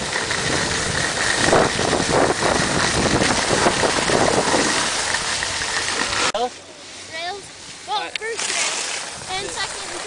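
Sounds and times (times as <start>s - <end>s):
wind buffeting microphone: 0.0s - 6.3s, 9.0s - 10.0s
skis scraping over snow: 0.0s - 10.0s.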